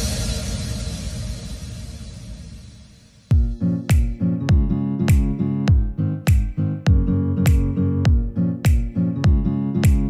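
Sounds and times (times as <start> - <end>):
upbeat guitar music with beat: 3.3 - 10.0.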